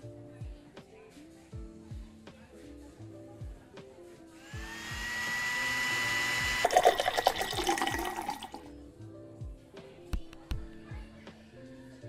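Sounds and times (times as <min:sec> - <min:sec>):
background music: 0:00.0 - 0:12.0
small motor whining: 0:04.4 - 0:06.9
drink pouring into plastic cup: 0:05.7 - 0:08.7.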